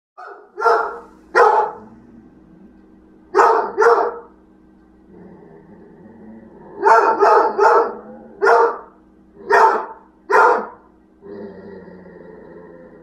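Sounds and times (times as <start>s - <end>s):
dog barking: 0.2s - 1.8s, 3.3s - 4.3s, 6.8s - 10.9s.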